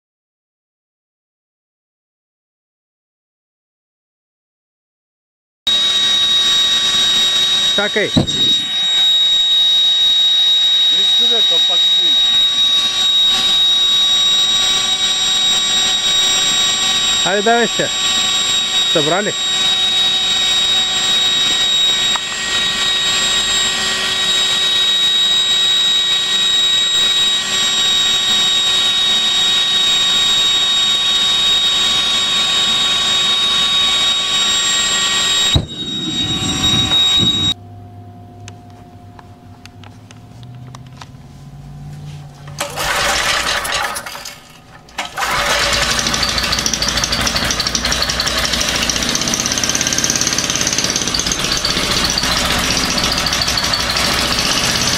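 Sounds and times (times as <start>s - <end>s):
engine running with high whine: 5.7s - 54.9s
sharp gas blast bang: 8.1s - 8.9s, 35.5s - 37.6s
small petrol engine running: 42.4s - 54.9s.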